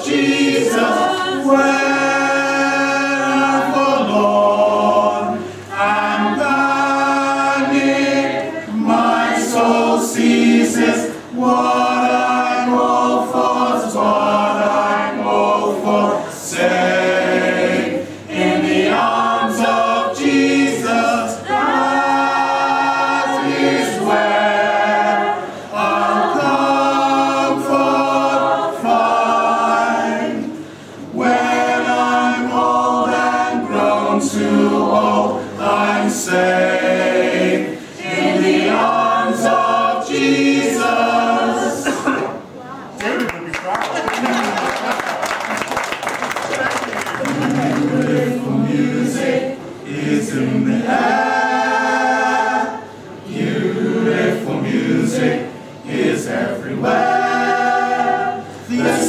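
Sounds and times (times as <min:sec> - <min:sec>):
mixed choir singing a cappella: 0:00.0 - 0:42.6, 0:44.4 - 0:59.0
singers breathing: 0:05.4 - 0:05.7, 0:30.5 - 0:31.1.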